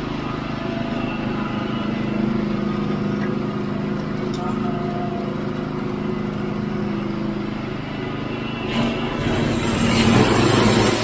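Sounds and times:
sawmill engine running: 0.0s - 11.0s
loud rushing noise: 7.5s - 11.0s.

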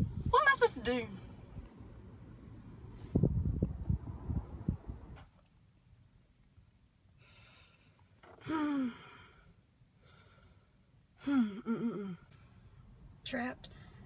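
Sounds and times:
person breathing: 7.2s - 11.5s
person sighing: 8.3s - 9.5s, 11.2s - 12.4s.

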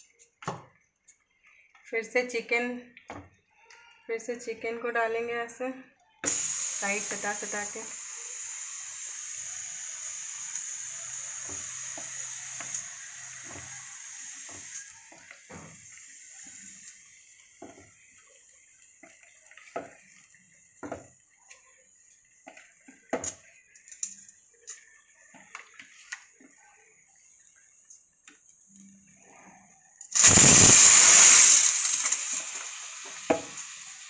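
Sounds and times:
steady hiss: 6.2s - 18.6s, 30.1s - 34.0s.

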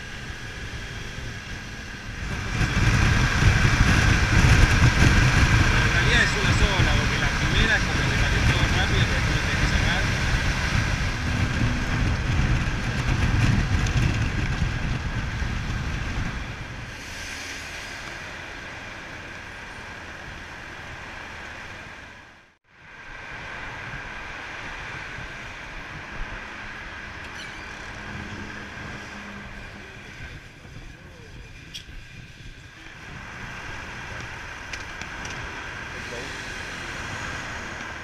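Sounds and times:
motorcycle engine running: 0.0s - 16.8s
wind noise: 0.0s - 22.0s, 22.8s - 38.0s
road traffic noise: 0.0s - 38.0s.

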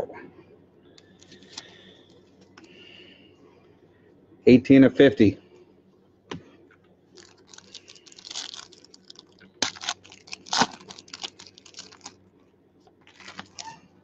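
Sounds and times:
foil wrapper crinkling: 1.2s - 1.8s, 7.1s - 12.2s, 13.0s - 13.8s
foil wrapper ripping: 7.2s - 12.2s, 13.1s - 13.8s.

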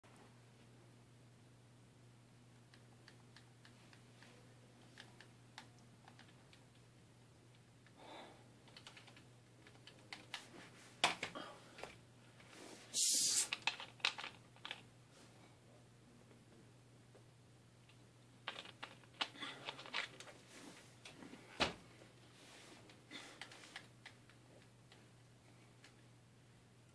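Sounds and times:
low steady hum: 0.1s - 13.0s, 13.6s - 26.9s
short loud hiss: 12.9s - 13.5s.

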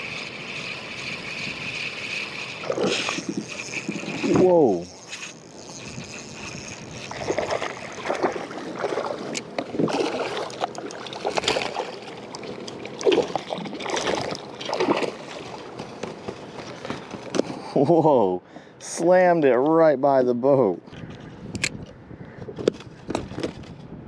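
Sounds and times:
fish splashing at surface: 7.0s - 15.6s.

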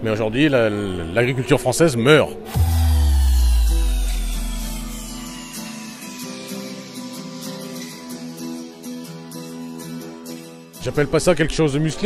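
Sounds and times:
strummed guitar: 2.5s - 10.8s.

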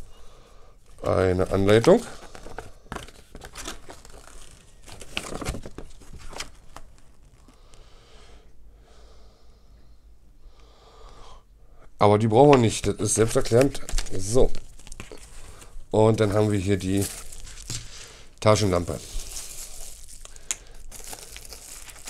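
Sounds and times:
paper rustling and crinkling: 1.0s - 7.6s, 13.2s - 22.0s.

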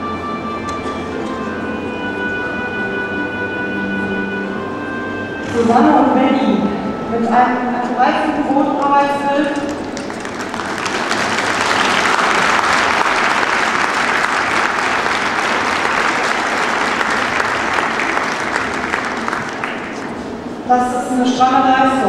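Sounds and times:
audience applauding: 9.6s - 20.4s.

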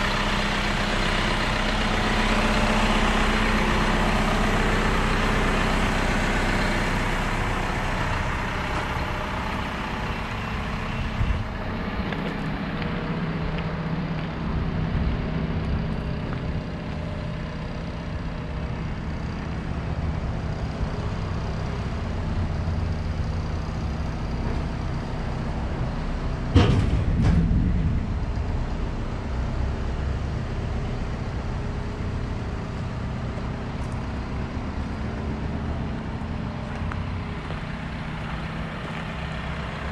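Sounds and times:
truck diesel engine idling: 0.0s - 39.9s
sharp thump: 26.5s - 28.2s.

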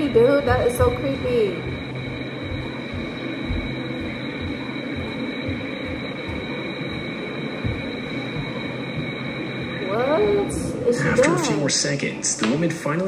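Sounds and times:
low rumble: 0.0s - 12.2s
high-pitched electronic whine: 0.0s - 13.0s.

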